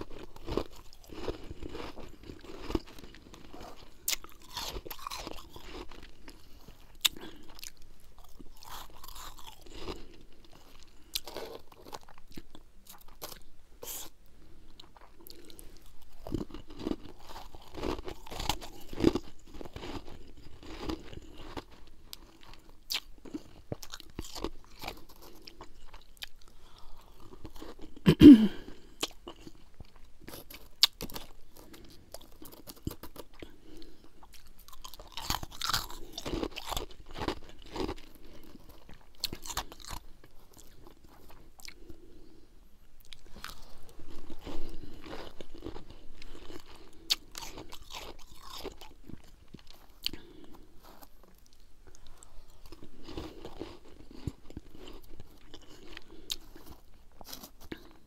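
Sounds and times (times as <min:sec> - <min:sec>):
crunching and chewing ice: 0:00.0 - 0:42.4, 0:43.0 - 0:58.0.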